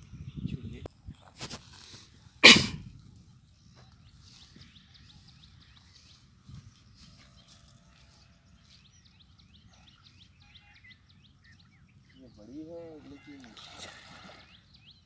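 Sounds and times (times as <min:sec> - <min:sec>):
small birds chirping: 0:03.2 - 0:15.0.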